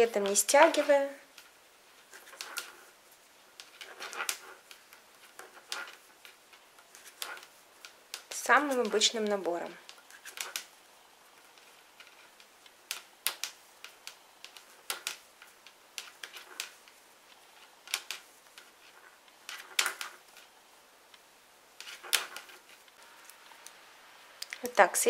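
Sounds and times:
knitting needle clicks: 0:11.5 - 0:16.9.

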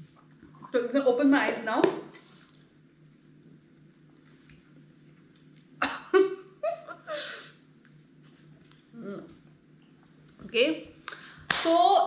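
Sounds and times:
faint room hum: 0:00.0 - 0:12.0
woman laughing: 0:05.8 - 0:07.5.

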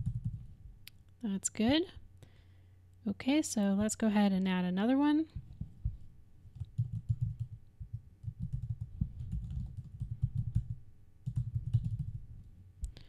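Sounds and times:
typing on computer keyboard: 0:00.0 - 0:00.5, 0:06.5 - 0:07.6, 0:08.2 - 0:12.2.

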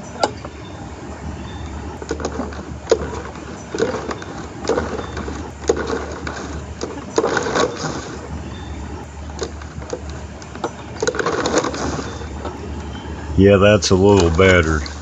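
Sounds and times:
mower recoil starter pulls: 0:02.0 - 0:13.0.

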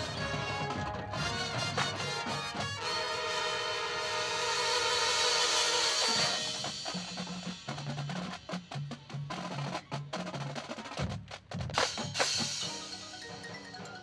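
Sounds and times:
snare and tenor drums: 0:00.0 - 0:14.0
mallet notes: 0:12.3 - 0:14.0.

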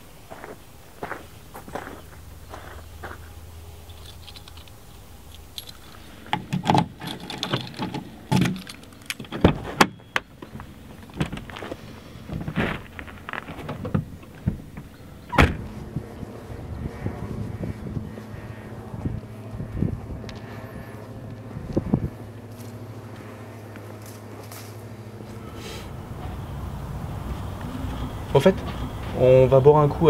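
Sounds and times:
footsteps on gravel: 0:00.2 - 0:04.6, 0:10.4 - 0:29.3
car keys jangling: 0:03.8 - 0:10.2
car door opening and shutting: 0:05.7 - 0:15.8.

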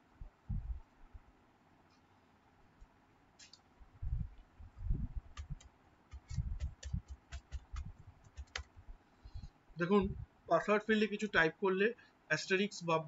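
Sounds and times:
keyboard key clicks: 0:05.3 - 0:08.7.

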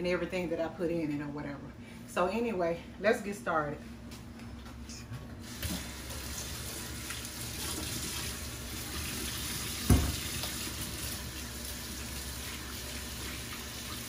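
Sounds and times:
faucet running into metal sink: 0:05.5 - 0:14.0.

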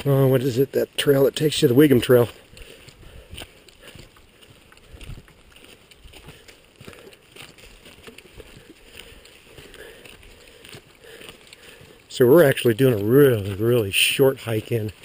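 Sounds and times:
footsteps on a trail: 0:00.0 - 0:15.0.

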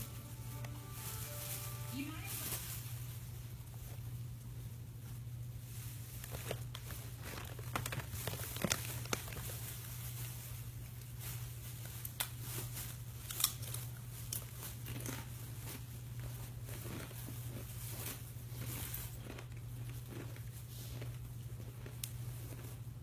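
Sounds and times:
cloth rustling: 0:00.0 - 0:04.2, 0:05.0 - 0:13.0
steady low hum: 0:00.0 - 0:08.5.

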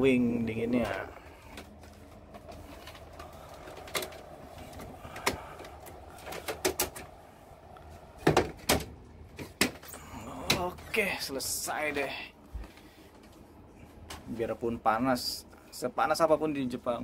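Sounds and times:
air conditioner blowing air: 0:00.0 - 0:17.0
sharp clicks and knocks: 0:02.5 - 0:07.1.

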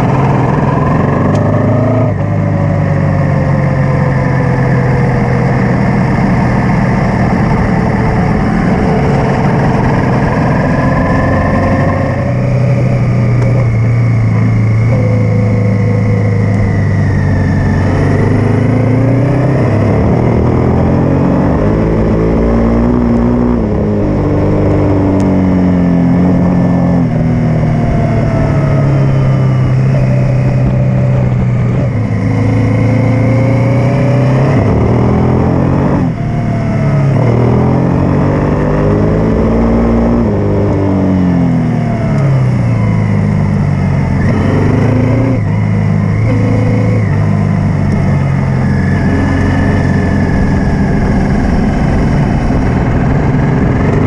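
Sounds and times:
motorcycle engine revving: 0:00.0 - 0:54.0
wind on microphone: 0:47.8 - 0:54.0.

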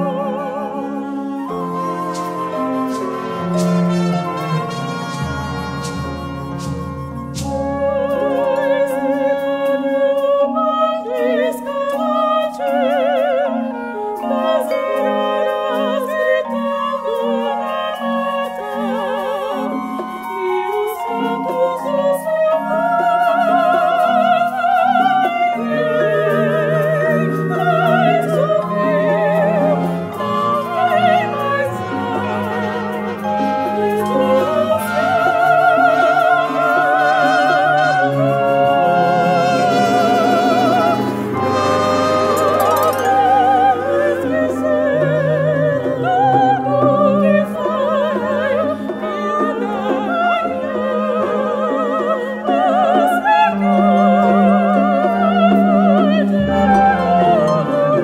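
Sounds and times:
women singing operatically: 0:00.0 - 0:06.6, 0:07.5 - 0:58.0
instrumental ensemble low notes: 0:00.0 - 0:09.7, 0:27.2 - 0:46.0
chamber ensemble low notes: 0:37.5 - 0:46.0.

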